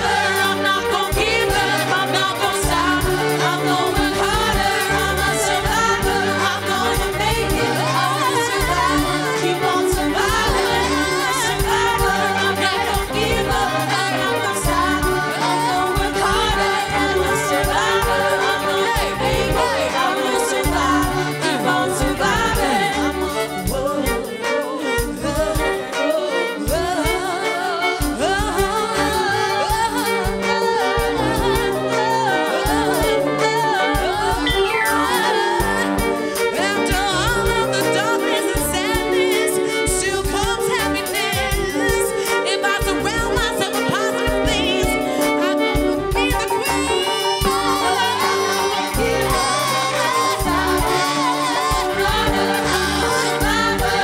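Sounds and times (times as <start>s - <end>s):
electric bass line: 0.0s - 24.3s, 44.3s - 54.0s
women singing together: 0.0s - 54.0s.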